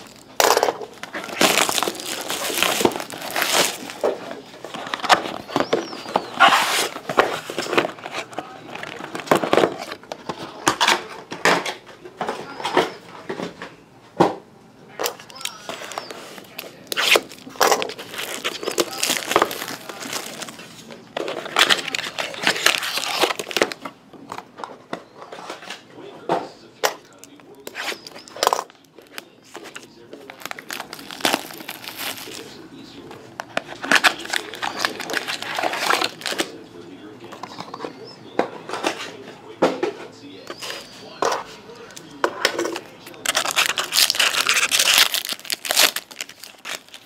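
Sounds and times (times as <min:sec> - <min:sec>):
plastic shrink-wrap crinkling and tearing: 0:00.0 - 0:09.9, 0:15.2 - 0:23.8, 0:27.1 - 0:32.6, 0:33.7 - 0:36.5, 0:43.0 - 0:47.0.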